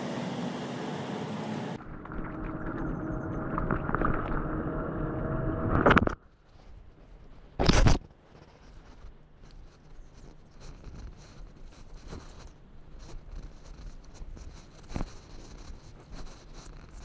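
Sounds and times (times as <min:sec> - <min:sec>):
road traffic hum: 0:00.0 - 0:06.2.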